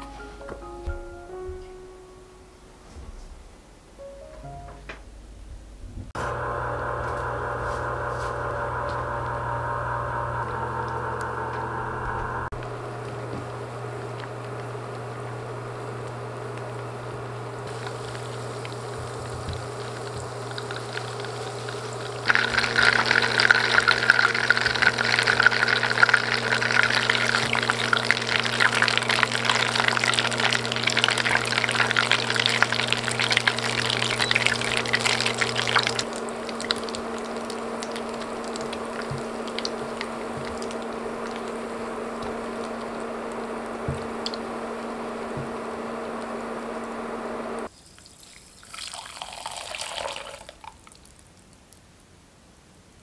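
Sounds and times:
butter crackling in a pot: 12.5 - 51.2
liquid trickling through a strainer: 17.7 - 43.5, 47.7 - 51.2.

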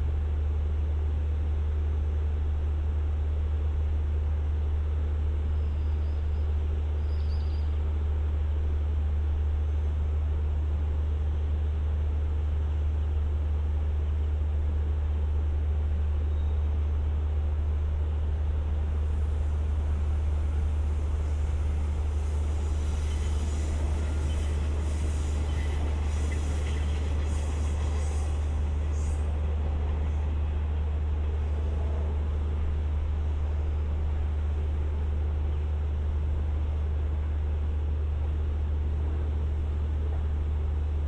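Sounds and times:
diesel train engines idling: 7.8 - 41.0.

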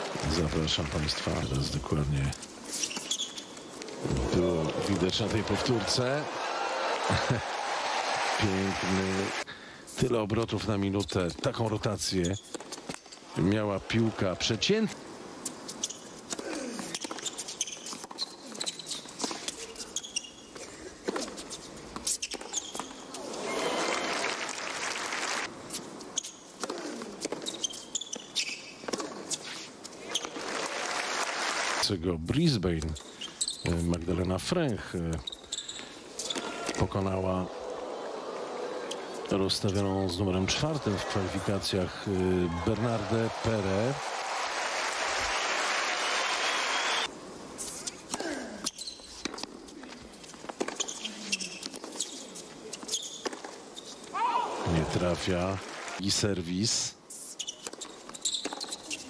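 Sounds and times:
crowd applauding: 0.0 - 1.3, 4.1 - 9.4, 23.5 - 25.5, 30.4 - 31.8, 40.4 - 47.1
shoe squeaks on hard court: 2.7 - 3.7, 12.1 - 13.3, 15.4 - 23.2, 25.7 - 30.5, 32.8 - 33.9, 35.2 - 36.8, 47.6 - 54.2, 57.1 - 59.0.

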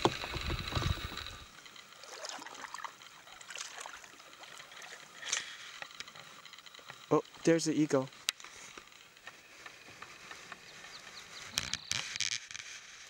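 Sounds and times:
kayak paddles dipping into water: 0.0 - 1.4
water drips and small splashes: 2.0 - 5.3.

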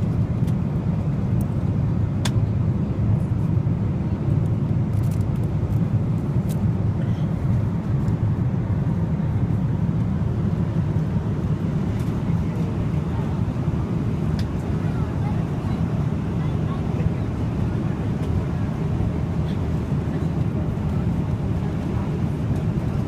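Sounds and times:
airliner cabin roar: 0.0 - 23.0.

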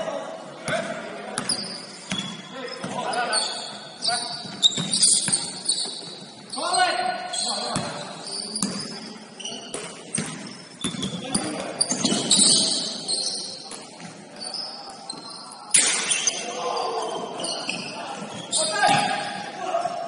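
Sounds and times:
sneakers squeaking: 0.6 - 20.0
basketball bouncing: 9.7 - 12.4.

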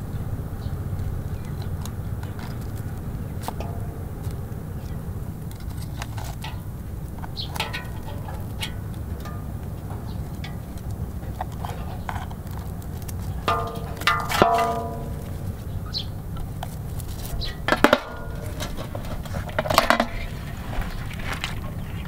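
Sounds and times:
metal clatter with ringing tones: 3.6 - 4.9, 5.6 - 15.7, 17.4 - 20.4.

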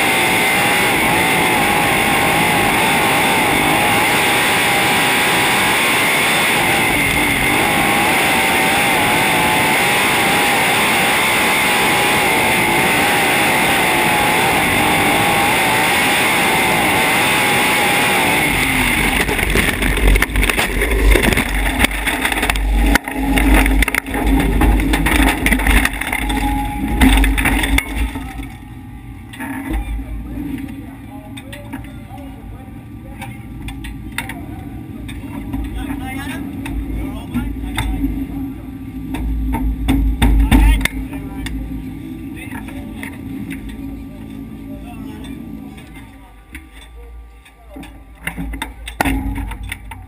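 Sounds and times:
racing car engine running hard: 0.0 - 50.0
low rumbling and knocks: 19.1 - 28.6.

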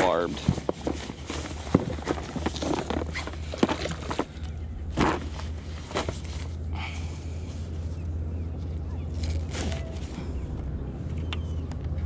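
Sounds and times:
dry bag rustling and knocking: 0.0 - 6.5
steady low rumble: 0.0 - 12.0.

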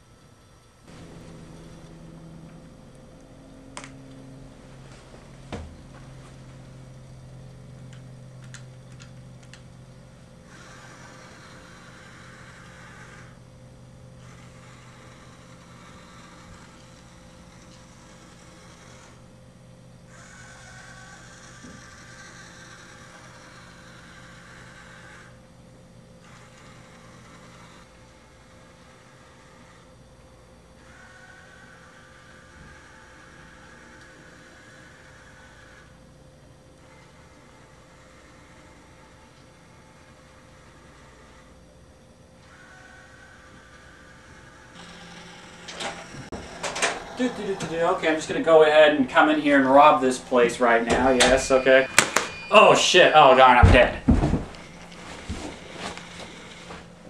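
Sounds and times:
electrical hum: 0.0 - 57.0
hissing whir: 0.8 - 57.0.

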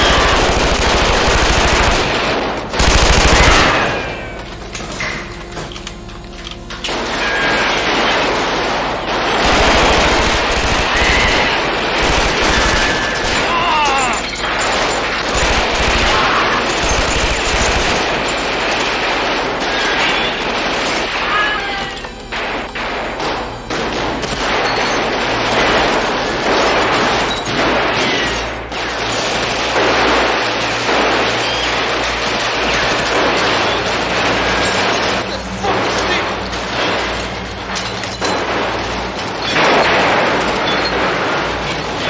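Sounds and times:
automatic gunfire: 0.0 - 4.2, 7.8 - 14.1, 14.7 - 21.6.

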